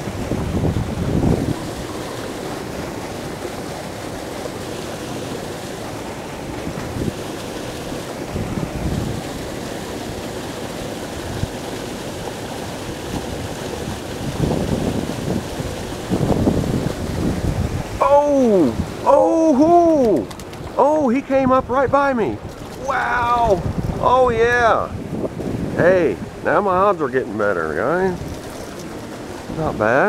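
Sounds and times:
wind buffeting microphone: 0.0 - 3.8, 6.5 - 7.3, 7.9 - 10.2, 13.0 - 30.0
spillway water rushing: 0.0 - 30.0.

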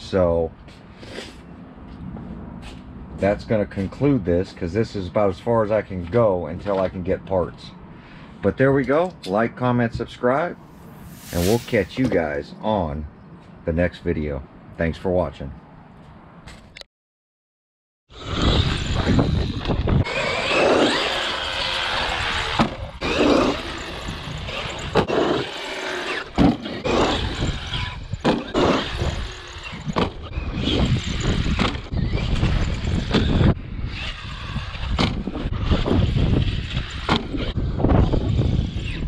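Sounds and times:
electric motor whining: 18.2 - 29.8.

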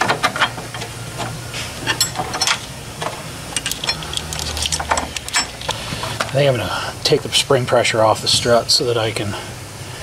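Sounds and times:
low hum and hiss: 0.0 - 10.0
metallic clicks and knocks: 3.5 - 5.8.

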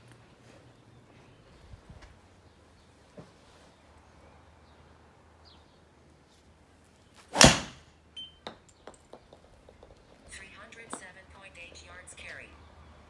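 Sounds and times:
golf driver striking ball: 7.3 - 7.8.

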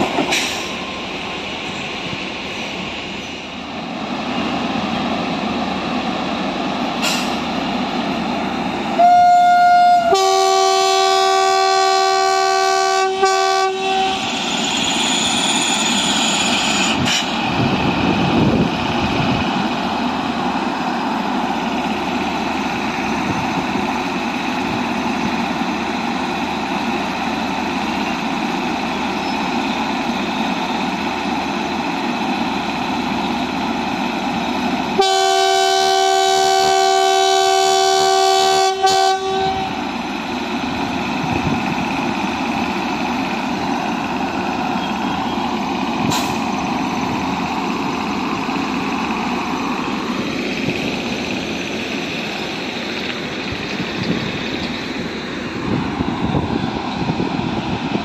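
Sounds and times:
train wheels rumbling on rail: 0.0 - 58.0
locomotive horn: 9.0 - 14.3, 34.9 - 39.8.

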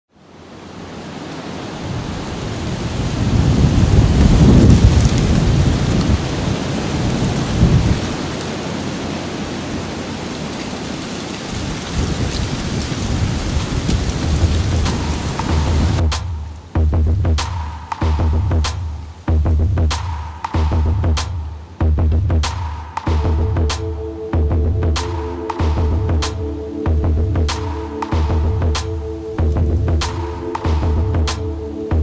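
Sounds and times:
steady rain: 0.1 - 32.0
low rolling thunder: 1.8 - 10.5, 11.5 - 16.2.

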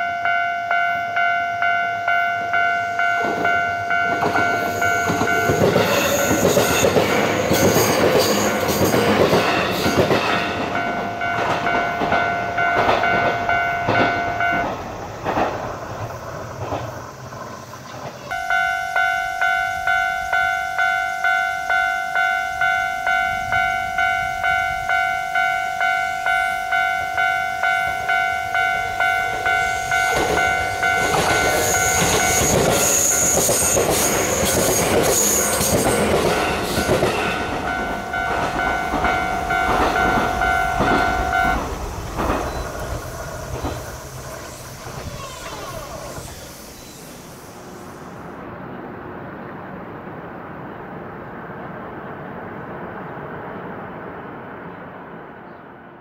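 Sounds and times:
level crossing alarm bell: 0.0 - 14.8, 18.3 - 42.8
train rail-joint clatter: 2.1 - 47.1.

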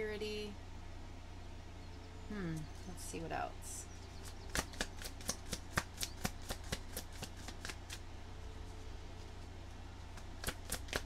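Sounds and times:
cards being shuffled: 4.2 - 8.0, 10.1 - 11.0.

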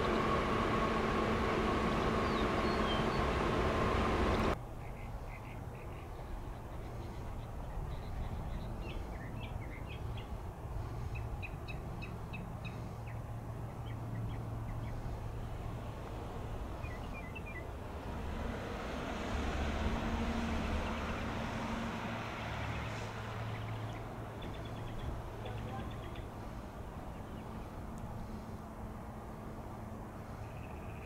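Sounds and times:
faint jet whine: 0.0 - 4.6
jet engines rumbling: 0.0 - 4.6
small birds chirping: 2.1 - 3.5, 22.7 - 27.8.

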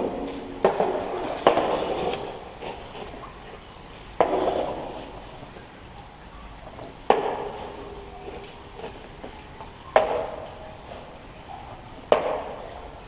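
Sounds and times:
paddle knocking in echoing tunnel: 0.0 - 2.6, 4.1 - 5.6, 6.8 - 8.2, 8.8 - 11.4, 12.0 - 13.0.

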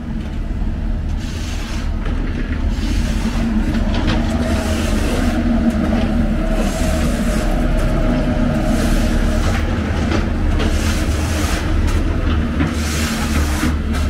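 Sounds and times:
large vehicle engine rumbling: 0.0 - 14.0.

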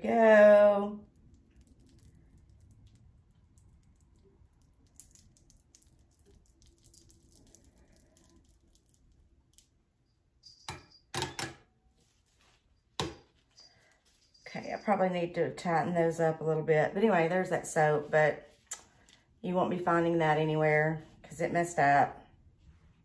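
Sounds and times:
wires crackling through soap: 0.0 - 10.4, 17.4 - 19.4.

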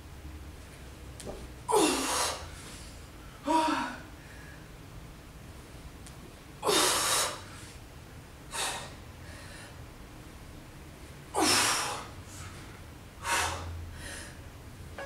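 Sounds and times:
woman breathing hard: 1.7 - 4.7, 8.5 - 9.9, 11.4 - 14.5.

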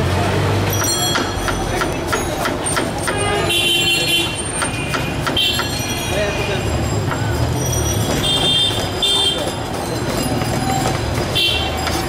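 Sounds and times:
street traffic: 0.0 - 12.0
vehicle horn: 3.1 - 5.6.

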